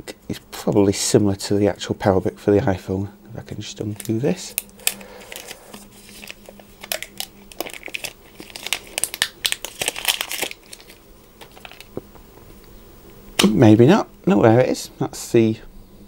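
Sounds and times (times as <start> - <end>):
plastic wrapping crinkling: 3.8 - 12.5.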